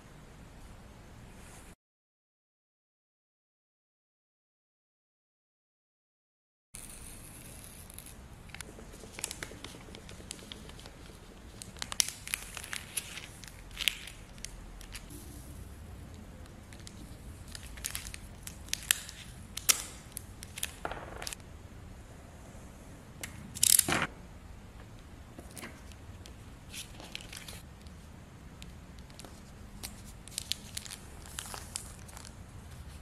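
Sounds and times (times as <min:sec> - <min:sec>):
plastic film crinkling: 0:07.8 - 0:15.1, 0:16.7 - 0:21.4, 0:26.7 - 0:27.7, 0:29.0 - 0:33.0.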